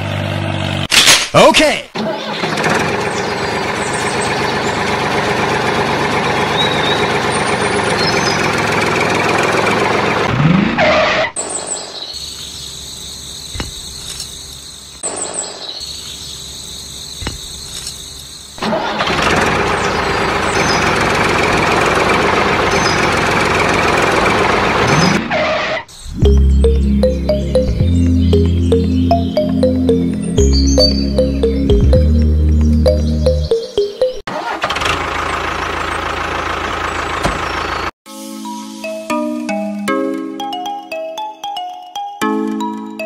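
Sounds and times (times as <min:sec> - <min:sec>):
model tractor engines running: 0:02.0 - 0:10.4, 0:18.6 - 0:25.2, 0:34.3 - 0:37.9.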